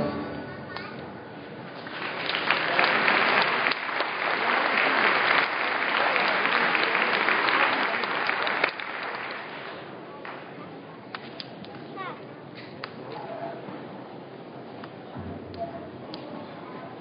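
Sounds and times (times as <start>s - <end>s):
audience applauding: 1.7s - 10.4s.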